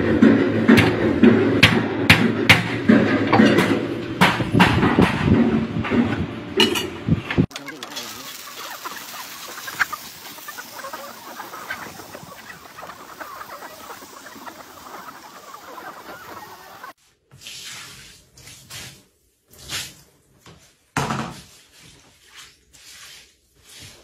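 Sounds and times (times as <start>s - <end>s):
chickens clucking: 6.0s - 17.0s.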